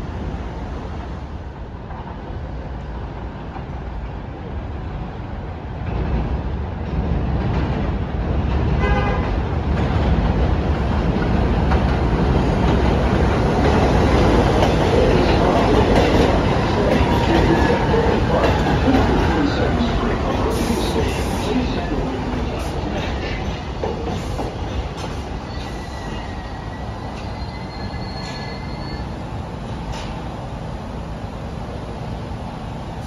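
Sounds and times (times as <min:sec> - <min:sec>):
subway train rumbling: 0:00.0 - 0:33.0
train horn toot: 0:08.8 - 0:09.4.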